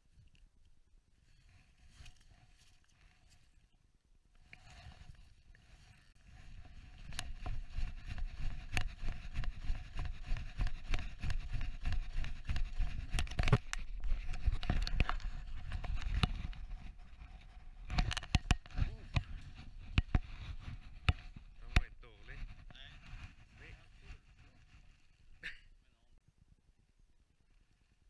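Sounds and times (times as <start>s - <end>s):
camera handling noise: 6.9s - 17.0s, 17.8s - 21.3s.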